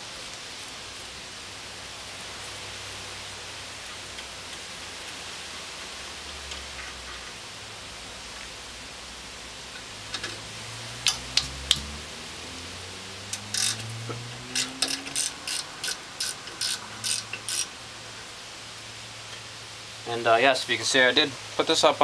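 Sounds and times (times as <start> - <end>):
socket ratchet clicking: 13.3 - 13.9, 14.5 - 17.7.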